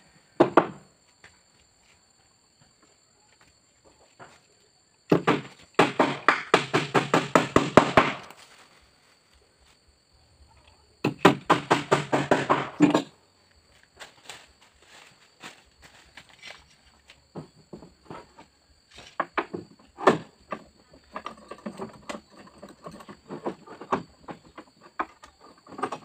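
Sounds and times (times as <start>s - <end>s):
hammer driving nails into wood: 11.0s - 13.1s.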